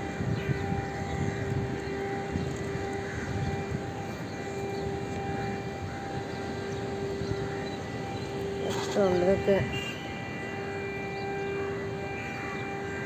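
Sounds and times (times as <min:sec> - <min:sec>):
siren steady tone: 0:00.0 - 0:13.0.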